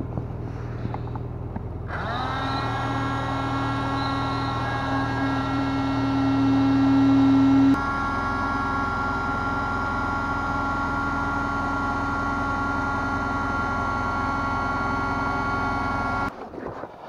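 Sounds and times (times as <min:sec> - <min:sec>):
electric air pump motor hum: 0:01.9 - 0:16.3.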